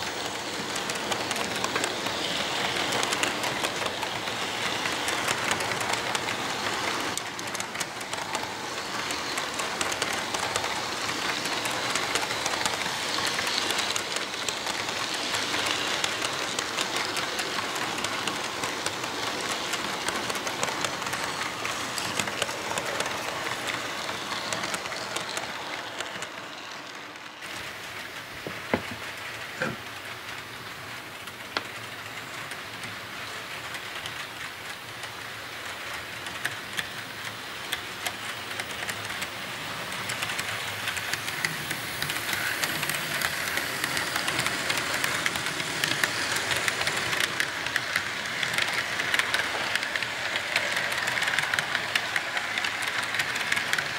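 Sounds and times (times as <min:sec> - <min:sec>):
model train cars rattling on track: 0:00.0 - 0:53.9.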